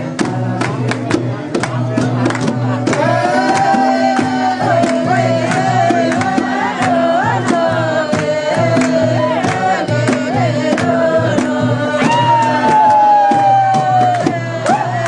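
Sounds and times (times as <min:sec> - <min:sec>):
hand drum beat: 0:00.0 - 0:15.0.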